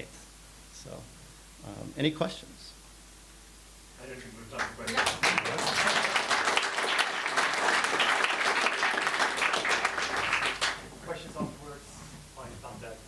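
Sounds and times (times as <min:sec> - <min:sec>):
audience applauding: 0:04.6 - 0:10.9.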